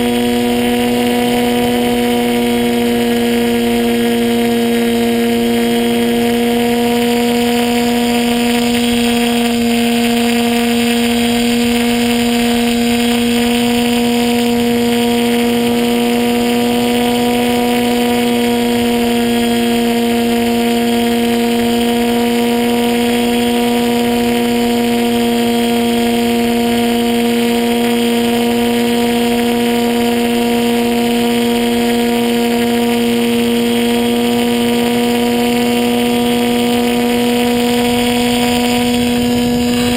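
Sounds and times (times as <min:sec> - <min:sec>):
model plane motor droning: 0:00.0 - 0:39.9
rushing air: 0:37.2 - 0:39.9.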